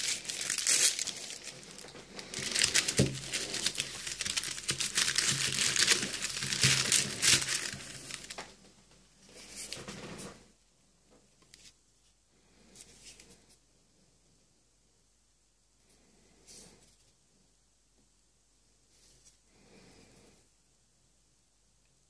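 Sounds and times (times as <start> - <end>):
paper wrapping tearing and crinkling: 0.0 - 8.5.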